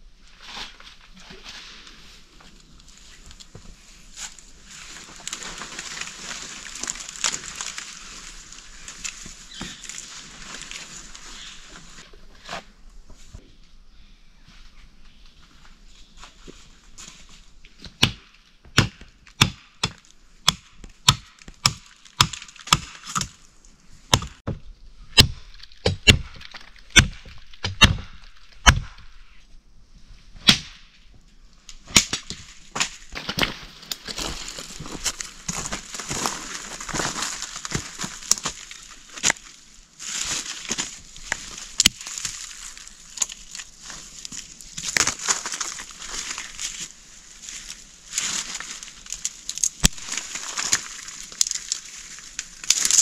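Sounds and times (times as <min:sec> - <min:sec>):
leafy branches rustling: 0:00.2 - 0:13.5, 0:21.4 - 0:53.0
machete chopping wood: 0:17.8 - 0:23.3, 0:24.1 - 0:24.6, 0:25.2 - 0:29.1, 0:30.4 - 0:30.8.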